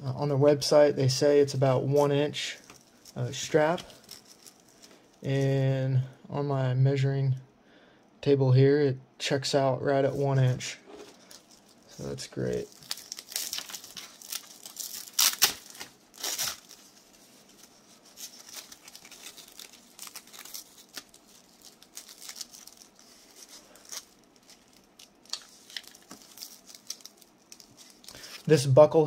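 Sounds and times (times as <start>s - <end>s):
nylon webbing rustling: 11.3s - 28.5s.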